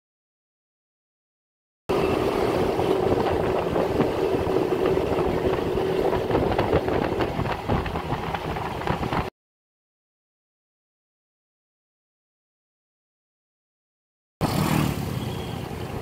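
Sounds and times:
scooter engine running: 1.9 - 9.3, 14.4 - 16.0
wind and road noise: 1.9 - 9.3, 14.4 - 16.0.

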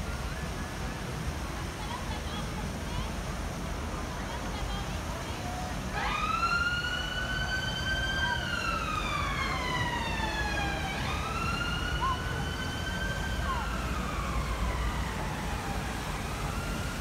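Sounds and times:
low rumble of traffic: 0.0 - 17.0
emergency vehicle siren wailing: 5.9 - 17.0.

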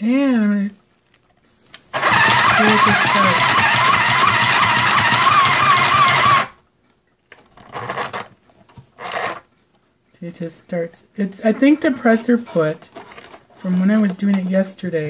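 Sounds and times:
sewing machine motor whine: 2.0 - 6.6.

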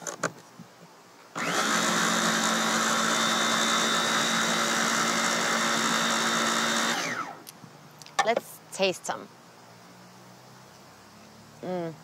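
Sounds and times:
food processor motor running: 1.4 - 7.4.

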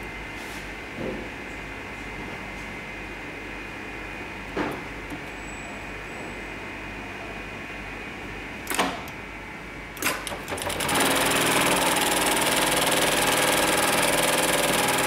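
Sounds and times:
sewing machine stitching: 10.0 - 15.0.

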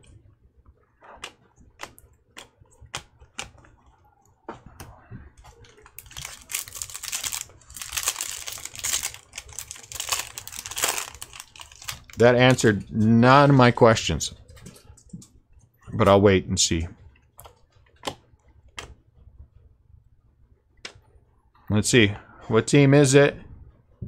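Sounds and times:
cards shuffling and riffling: 5.6 - 12.2.

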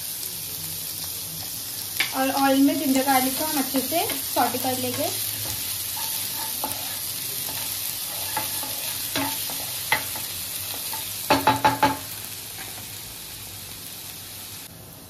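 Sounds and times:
food sizzling in hot oil: 0.0 - 15.0
wooden spatula scraping pan: 4.9 - 9.8
spatula knocking on pan: 8.4 - 12.1.

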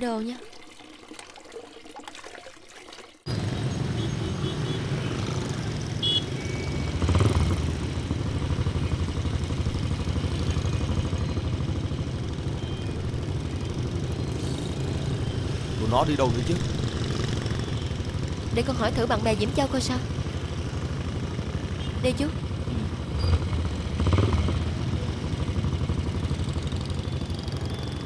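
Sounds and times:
motorbike engine running: 3.3 - 28.0
street traffic: 3.3 - 28.0.

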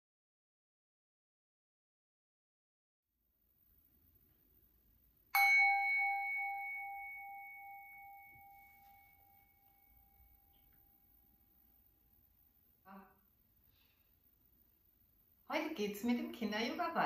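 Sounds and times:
singing bowl ringing: 5.3 - 11.0.

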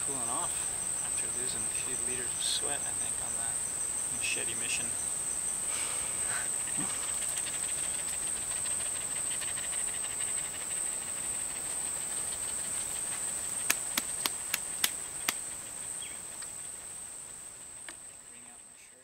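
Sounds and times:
insect ticking chorus: 0.0 - 19.0
insects buzzing drone: 0.0 - 19.0
sharp clicks: 13.6 - 15.4.

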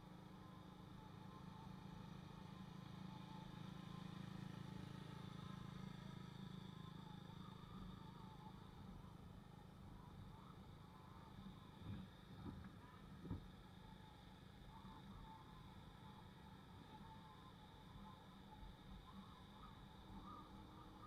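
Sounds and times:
motorbike engine hum: 1.3 - 9.1.

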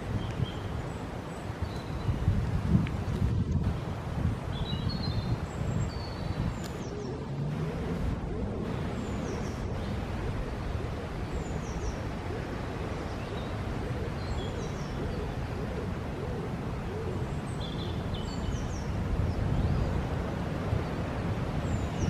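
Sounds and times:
low outdoor rumble: 5.2 - 22.0.

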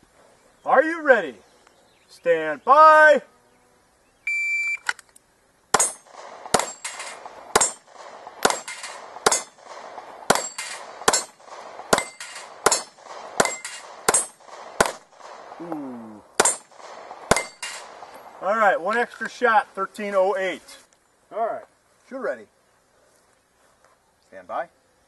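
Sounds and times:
pistol shots: 5.7 - 15.7, 16.4 - 18.2
bullets ringing on steel targets: 5.8 - 9.6, 10.3 - 15.0, 16.4 - 16.7, 17.3 - 17.9.

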